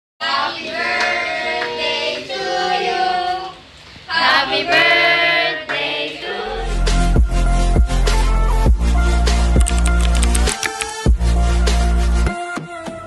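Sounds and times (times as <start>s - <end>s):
voices singing a melody: 0.2s - 7.2s.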